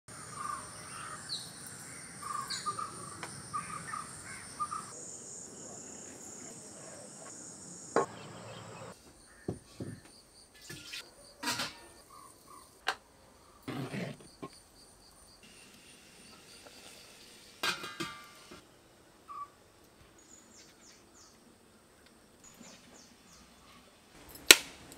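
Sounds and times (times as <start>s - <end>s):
birds calling: 0.1s - 10.1s
high insect drone: 0.1s - 10.7s
metal pot clanking: 10.6s - 11.9s, 17.6s - 18.6s
kitchen vessels knocking and clinking: 10.6s - 12.0s, 17.6s - 18.6s.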